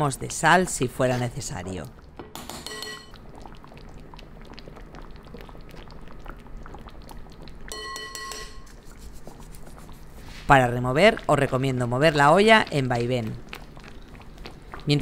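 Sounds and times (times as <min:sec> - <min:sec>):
stew bubbling in a pan: 0:00.1 - 0:15.0
steady pitched tone: 0:07.7 - 0:08.7.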